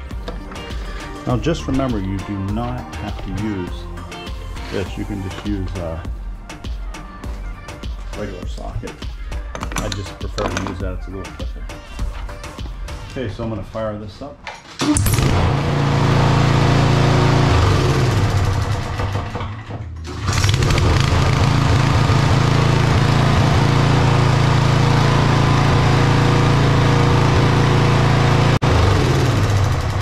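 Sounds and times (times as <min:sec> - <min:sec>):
lawn mower engine running: 0:14.8 - 0:30.0.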